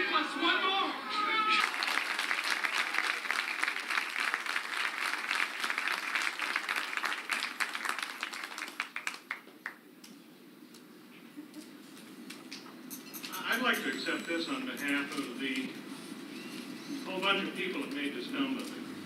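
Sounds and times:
audience applauding: 0.9s - 9.8s.

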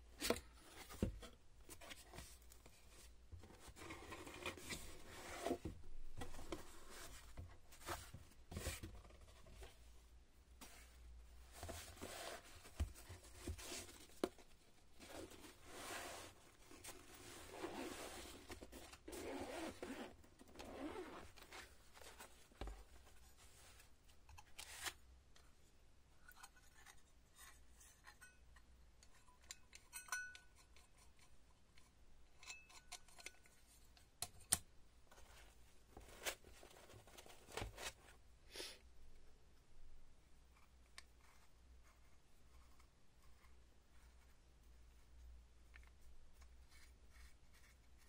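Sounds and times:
zipper being drawn open: 17.4s - 18.3s, 19.1s - 21.3s.

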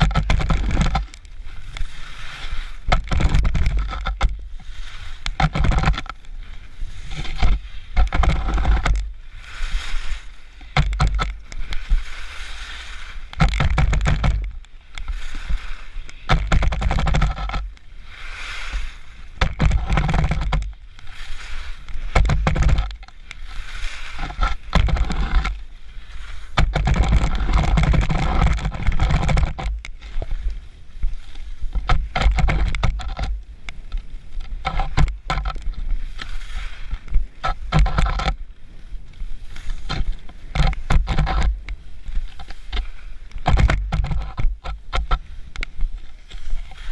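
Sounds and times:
skis hissing and scraping on snow: 1.3s - 2.9s, 4.4s - 5.4s, 6.2s - 10.8s, 11.4s - 13.4s, 14.8s - 16.3s, 17.9s - 19.9s, 20.9s - 22.5s, 23.2s - 26.6s, 35.7s - 37.7s, 38.7s - 40.9s, 41.8s - 43.4s, 45.2s - 46.9s.

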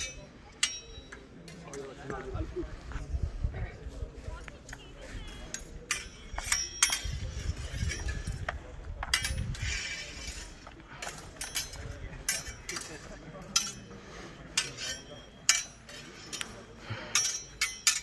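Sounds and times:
steel sword blades clashing: 0.0s - 1.2s, 5.9s - 7.2s, 9.2s - 12.9s, 13.5s - 18.0s.

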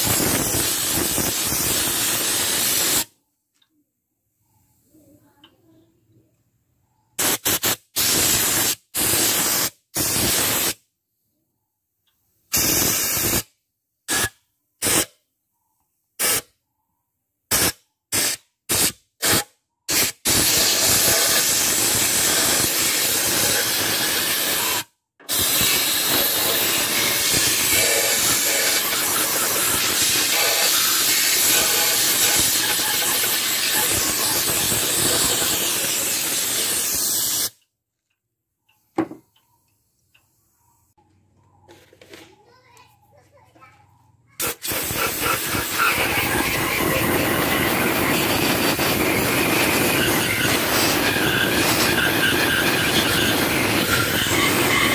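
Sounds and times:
pressure washer spray hissing: 0.0s - 3.1s, 7.2s - 10.8s, 12.5s - 13.5s, 14.1s - 15.1s, 17.5s - 37.6s, 44.4s - 54.9s.

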